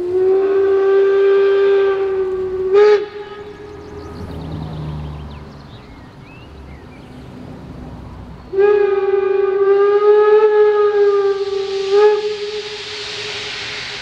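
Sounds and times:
steam whistle blasts: 0.0s - 4.6s, 8.5s - 14.0s
steam hissing: 0.0s - 14.0s.

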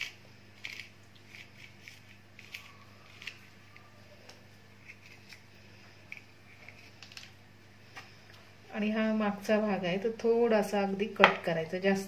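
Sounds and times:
knife cutting and scraping gourds: 0.0s - 7.3s.

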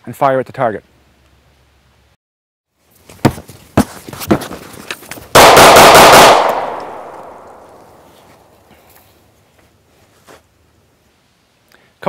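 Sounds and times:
rapid handgun shots: 5.4s - 7.6s.

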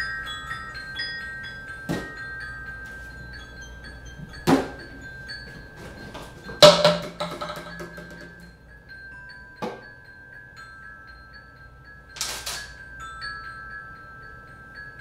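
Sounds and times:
bell-like mallet percussion: 0.0s - 15.0s
low ringing tone: 0.0s - 15.0s.

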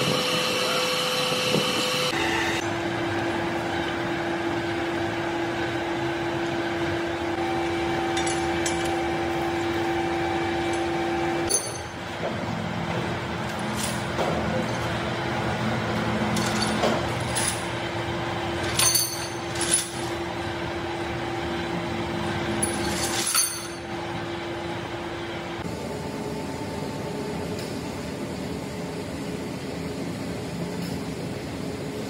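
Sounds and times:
machine hum: 0.0s - 32.0s
chain clinking against steel: 11.5s - 12.0s, 16.2s - 17.8s, 18.6s - 20.2s, 22.6s - 23.8s.

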